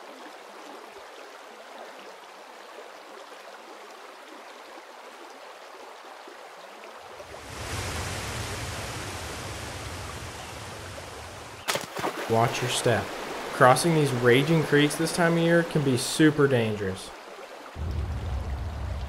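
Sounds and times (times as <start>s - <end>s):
rushing water: 0.0s - 19.0s
waterfall cascading down rock: 7.4s - 16.4s.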